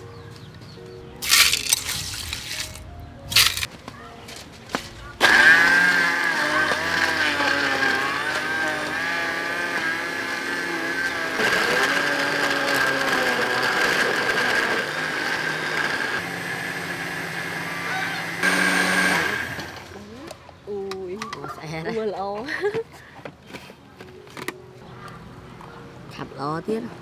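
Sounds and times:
blender motor whining: 0:05.2 - 0:20.0.

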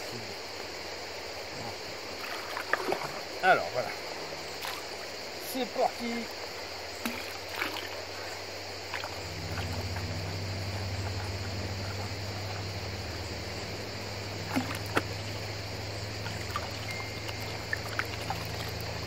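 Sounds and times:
low motor hum: 0:08.8 - 0:19.0
water sloshing in a pan: 0:16.2 - 0:19.0.

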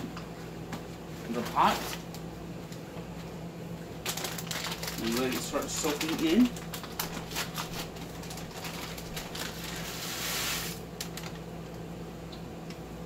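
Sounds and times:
steady low hum: 0:00.0 - 0:13.0
hiss of frying oil: 0:09.8 - 0:10.8.

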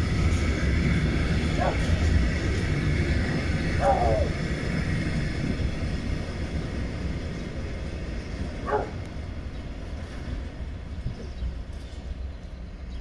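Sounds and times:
freight train rumbling: 0:00.0 - 0:13.0.

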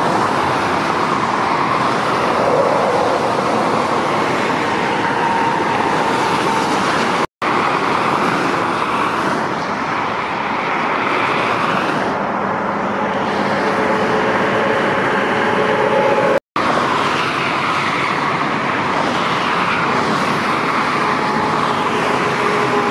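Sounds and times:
lorries driving past: 0:00.0 - 0:22.9.

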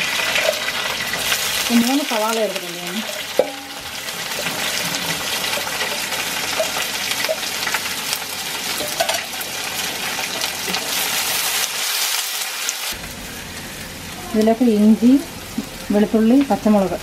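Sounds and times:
onions sizzling in oil: 0:00.0 - 0:17.0
metal spoon stirring: 0:08.7 - 0:09.3.

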